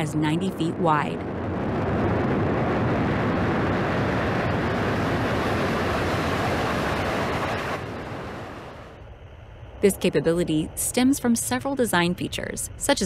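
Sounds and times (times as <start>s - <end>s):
jet engines roaring: 0.0s - 9.0s.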